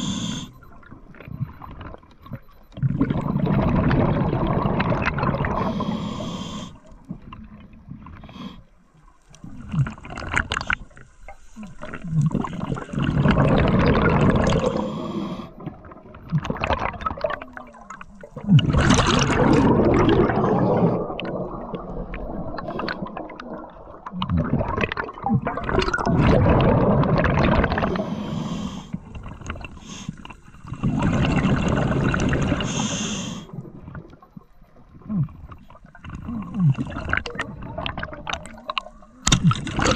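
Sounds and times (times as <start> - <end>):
hissing inhalations: 0.0 - 0.6, 5.6 - 6.8, 14.6 - 15.6, 27.9 - 29.0, 29.8 - 30.3, 32.6 - 33.5
bubbling regulator exhalations: 0.0 - 7.5, 11.6 - 34.1, 35.0 - 39.9.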